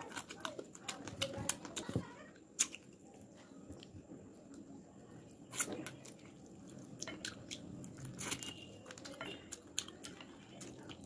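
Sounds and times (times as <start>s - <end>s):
person chewing and biting: 5.3s - 11.0s.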